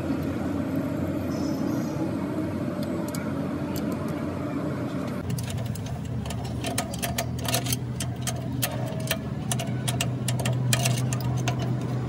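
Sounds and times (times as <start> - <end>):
steady low hum: 0.0 - 12.0
metallic clicks of steel rod: 5.2 - 12.0.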